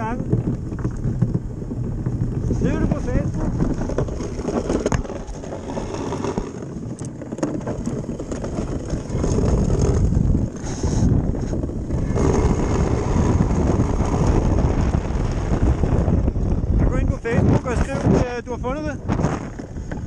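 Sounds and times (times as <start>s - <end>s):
wind buffeting microphone: 0.0s - 20.0s
clothing rubbing on microphone: 0.4s - 16.3s, 19.0s - 20.0s.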